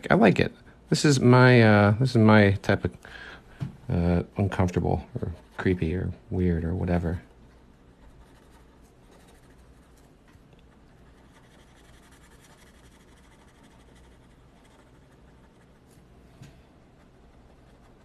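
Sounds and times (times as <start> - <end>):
pen scratching on paper: 8.0 - 10.0, 10.7 - 16.0.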